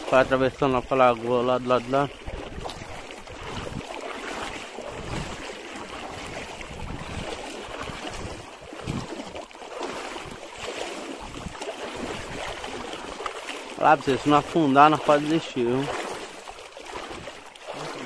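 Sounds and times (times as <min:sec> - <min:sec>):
water sloshing: 0:00.0 - 0:18.0
wind buffeting microphone: 0:01.6 - 0:09.4, 0:10.0 - 0:13.2.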